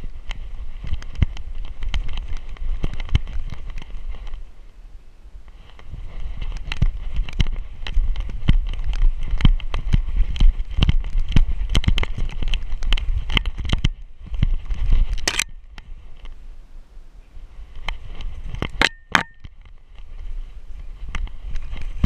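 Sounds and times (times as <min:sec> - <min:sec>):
wind rumble on microphone: 0:00.0 - 0:22.0
camera mount rattling: 0:15.1 - 0:15.6.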